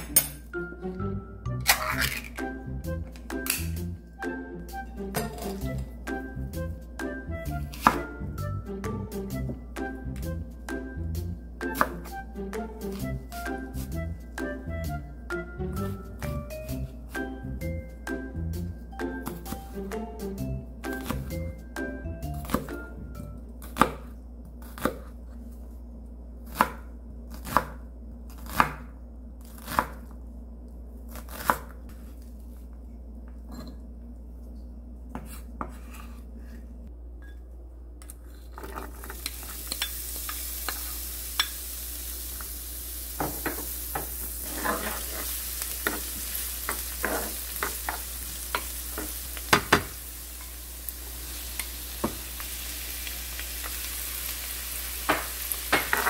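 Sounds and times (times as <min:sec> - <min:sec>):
knife chopping on wooden board: 0:07.8 - 0:08.0
onion sizzling in frying pan: 0:38.8 - 0:56.0.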